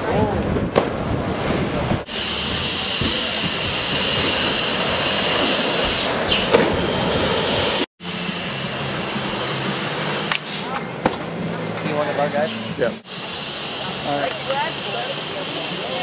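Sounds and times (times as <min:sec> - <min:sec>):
churning aerated water hiss: 0:02.1 - 0:06.4, 0:13.0 - 0:16.0.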